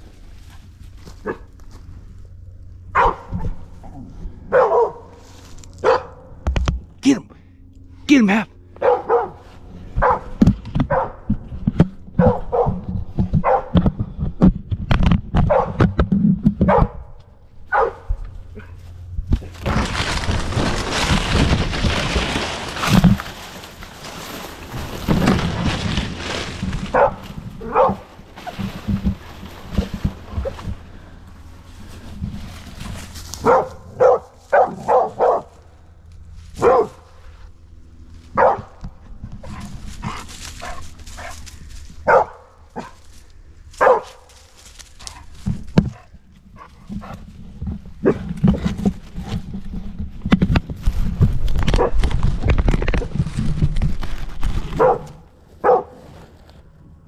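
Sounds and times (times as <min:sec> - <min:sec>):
rustling and bumping through brush: 0:00.0 - 0:07.0, 0:08.8 - 0:56.8
dog barking: 0:01.2 - 0:01.5, 0:02.9 - 0:03.6, 0:04.5 - 0:05.1, 0:05.8 - 0:06.3, 0:08.8 - 0:09.4, 0:10.0 - 0:11.2, 0:12.2 - 0:12.8, 0:13.4 - 0:13.8, 0:15.5 - 0:15.8, 0:16.6 - 0:17.1, 0:17.7 - 0:18.8, 0:26.9 - 0:28.0, 0:33.4 - 0:35.5, 0:36.6 - 0:37.0, 0:38.4 - 0:38.8, 0:42.0 - 0:43.0, 0:43.8 - 0:44.2, 0:54.8 - 0:56.0.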